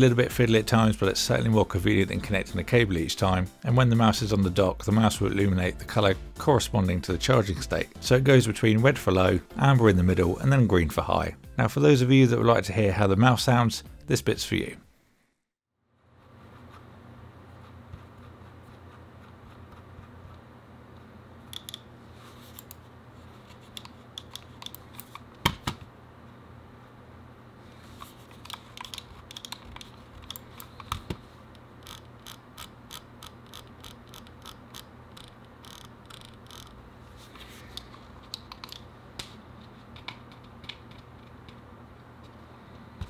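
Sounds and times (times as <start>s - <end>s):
computer mouse clicks: 23.7s - 25.3s, 28.4s - 31.2s, 37.7s - 39.3s.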